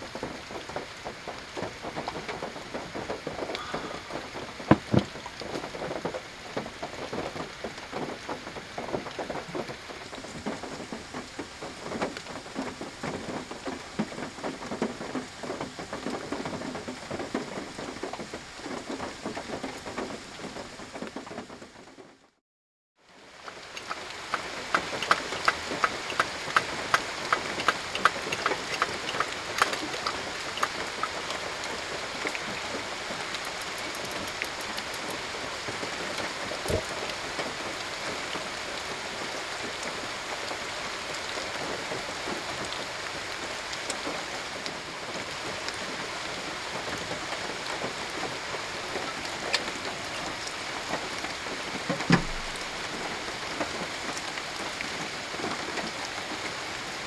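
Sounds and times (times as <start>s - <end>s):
steady rain: 0.0s - 22.4s, 23.0s - 57.0s
soft thump: 4.7s - 5.1s, 52.1s - 52.4s
sharp evenly spaced ticks: 23.7s - 31.4s, 33.4s - 35.2s.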